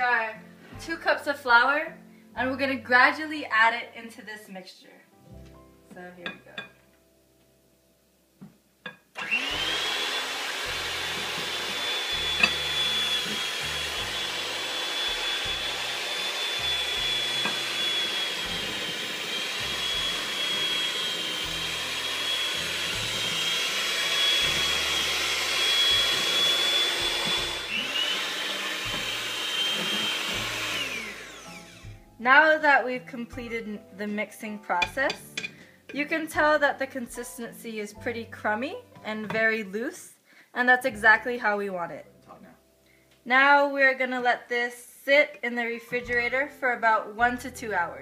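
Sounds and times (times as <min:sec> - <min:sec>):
electric hand mixer running: 0:09.2 - 0:32.0.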